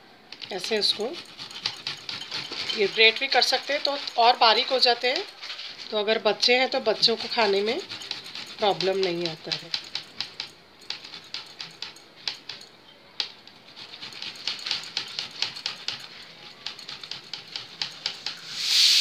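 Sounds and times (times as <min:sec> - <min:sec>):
garlic rasping on hand grater: 0:00.5 - 0:05.3, 0:06.4 - 0:10.4
pressure cooker venting steam: 0:17.8 - 0:19.0.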